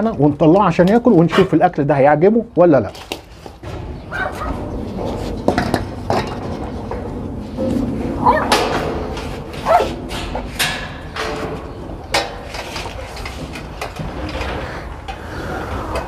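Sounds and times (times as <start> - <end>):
metal bowl and cage clanking: 3.6 - 14.6
dog whining: 4.1 - 4.6, 8.2 - 8.6, 9.6 - 10.0.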